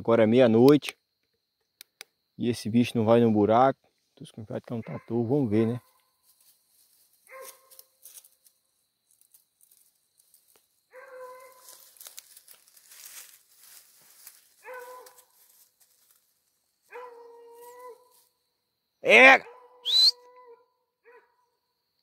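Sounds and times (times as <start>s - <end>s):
distant dog baying: 4.8s - 5.9s, 7.3s - 7.8s, 10.9s - 11.6s, 14.6s - 15.3s, 16.9s - 18.0s
rustling and crackling: 9.1s - 16.3s.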